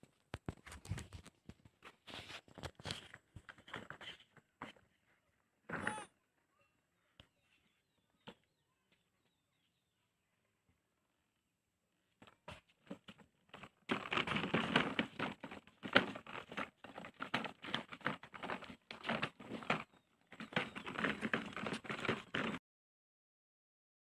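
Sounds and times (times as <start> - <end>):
plastic toy wheels crunching on dirt: 12.2 - 22.6.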